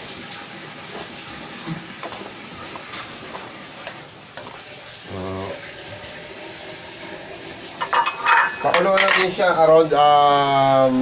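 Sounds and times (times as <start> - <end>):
curry bubbling hiss: 0.0 - 11.0
low hum of voice: 5.1 - 5.6
spatula scraping and tapping wok: 7.8 - 9.3.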